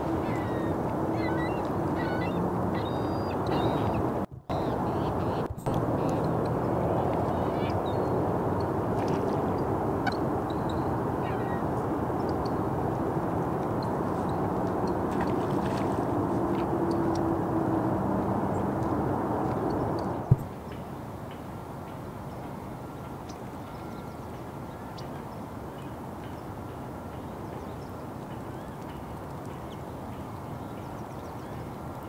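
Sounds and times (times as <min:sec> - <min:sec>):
highway traffic rumble: 0:00.0 - 0:28.4
faint bird calls: 0:00.1 - 0:06.3.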